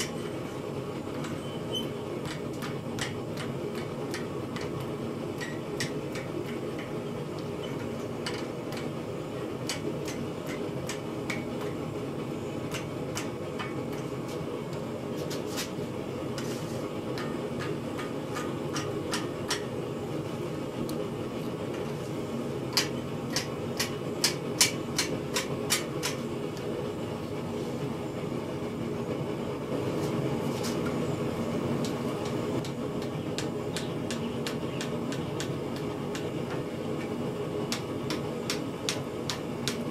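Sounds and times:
steady mechanical hum: 0:00.0 - 0:39.9
hammer tapping on metal: 0:02.2 - 0:09.0, 0:12.7 - 0:14.1, 0:17.2 - 0:19.7, 0:22.7 - 0:26.2, 0:31.8 - 0:37.1, 0:37.7 - 0:39.8.

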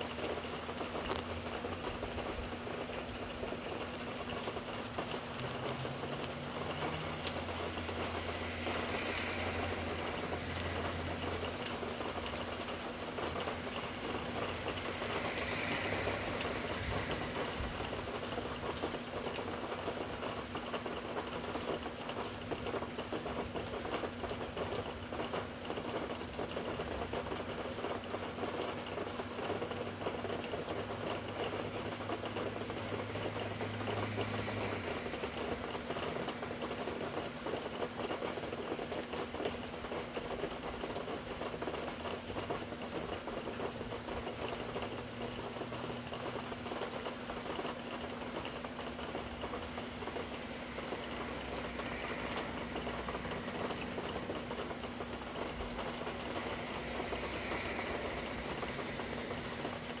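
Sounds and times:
rain pattering: 0:00.0 - 1:00.0.

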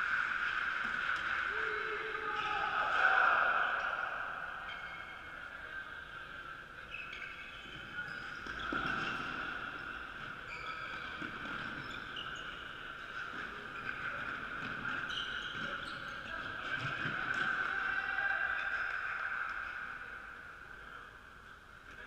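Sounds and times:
distant shouts: 0:01.4 - 0:05.2
shoe squeaks on wooden court: 0:04.7 - 0:05.4, 0:06.8 - 0:17.5.

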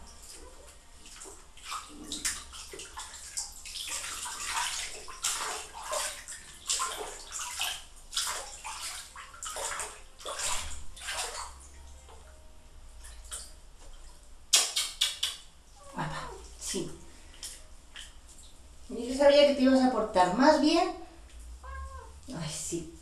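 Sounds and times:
water splashing in a tub: 0:00.0 - 0:11.9.

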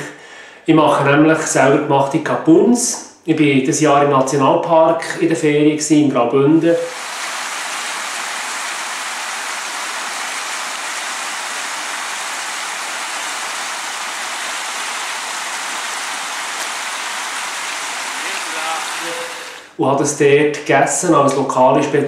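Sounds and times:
stream rushing over rocks: 0:06.9 - 0:19.8.

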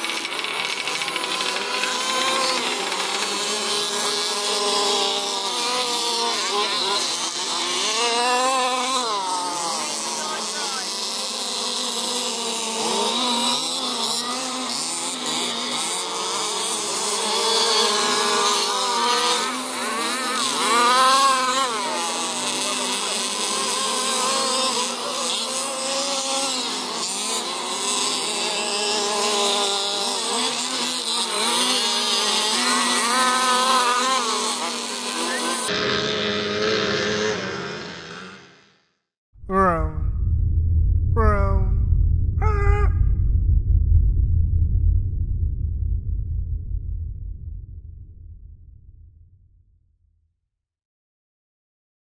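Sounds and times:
small engines buzzing and revving: 0:00.0 - 0:38.9.

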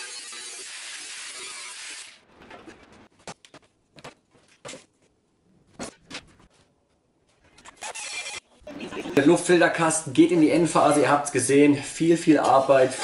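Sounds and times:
angle grinder hissing: 0:00.0 - 0:02.2.

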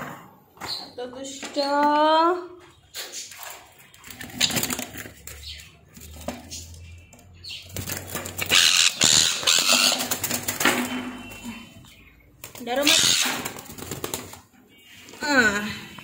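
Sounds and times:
parrot wings flapping: 0:12.4 - 0:14.4.

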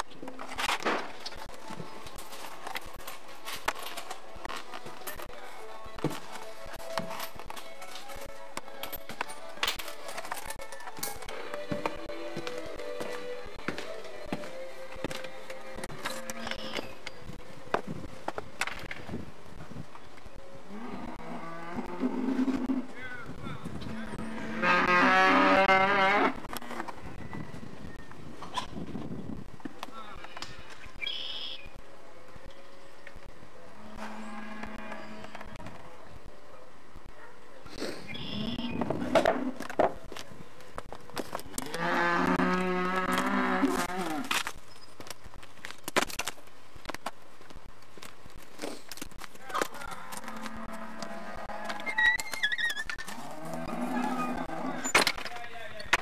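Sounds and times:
cattle mooing: 0:20.7 - 0:22.9, 0:23.8 - 0:26.8, 0:33.8 - 0:35.6, 0:41.6 - 0:44.3, 0:49.8 - 0:52.3, 0:53.0 - 0:54.9.

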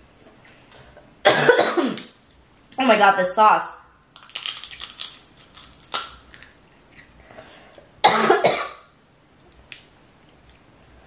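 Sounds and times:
person coughing: 0:01.2 - 0:02.0, 0:08.0 - 0:08.9.

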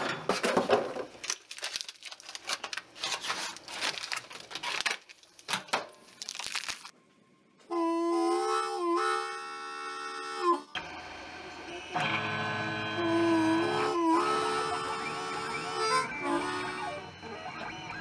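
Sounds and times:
plastic bag crinkling: 0:00.5 - 0:07.0.

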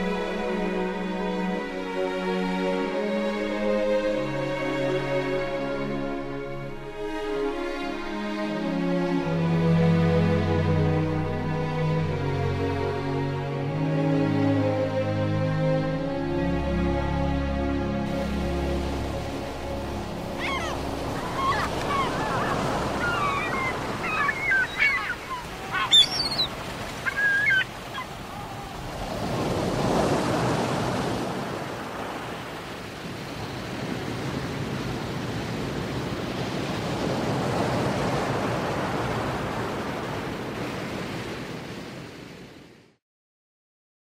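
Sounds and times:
ocean surf breaking: 0:18.1 - 0:42.8
short bird calls: 0:20.4 - 0:28.7.

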